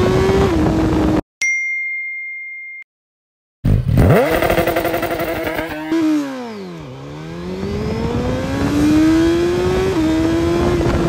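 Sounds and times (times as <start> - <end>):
motorcycle engine revving: 3.7 - 11.0.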